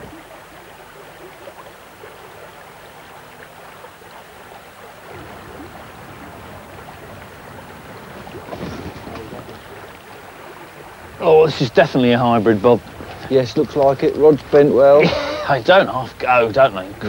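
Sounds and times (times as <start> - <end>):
flowing river water: 0.0 - 17.0
wind rumble on microphone: 5.0 - 11.2.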